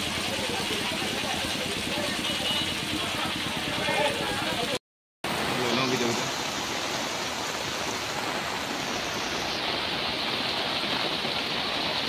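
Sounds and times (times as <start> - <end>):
heavy rain on a street: 0.0 - 12.0.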